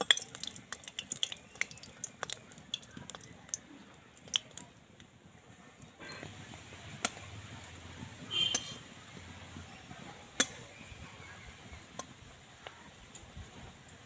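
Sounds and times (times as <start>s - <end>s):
faint frying in oil: 0.0s - 14.0s
spatula clinking against metal pan: 8.5s - 8.8s.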